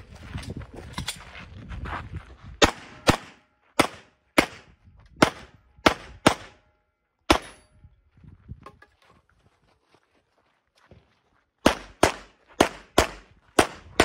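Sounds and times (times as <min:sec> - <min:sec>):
handgun shots: 0:07.3 - 0:07.7.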